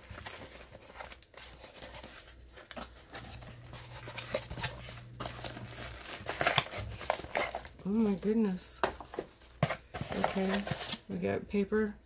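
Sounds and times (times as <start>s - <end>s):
hands opening cardboard box: 0.0s - 8.0s
tissue paper crinkling: 0.0s - 11.2s.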